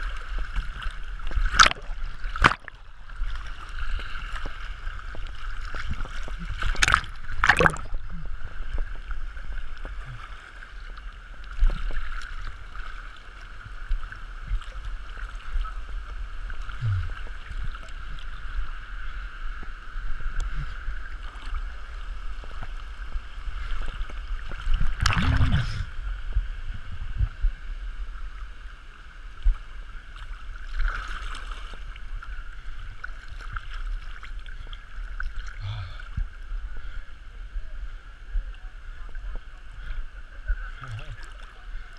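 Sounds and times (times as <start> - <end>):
small splashes: 0.0 - 8.2, 23.6 - 25.9, 30.6 - 32.0
stream water sloshing and lapping: 0.0 - 41.9
loud splash: 1.5 - 2.8, 6.6 - 8.0, 24.9 - 25.9.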